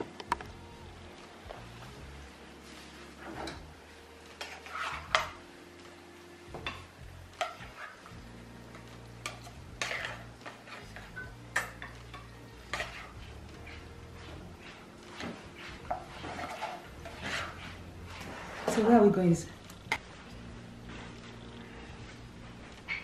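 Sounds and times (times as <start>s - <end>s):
spatula scraping a frying pan: 2.6s - 3.7s, 4.3s - 5.4s, 6.6s - 8.2s, 9.2s - 19.0s.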